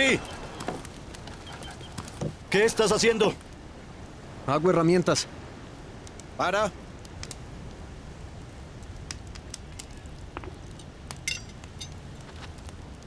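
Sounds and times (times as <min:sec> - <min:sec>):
low hiss: 0:00.0 - 0:13.0
small fire crackling: 0:00.0 - 0:13.0
metal tool clinking: 0:11.3 - 0:12.0.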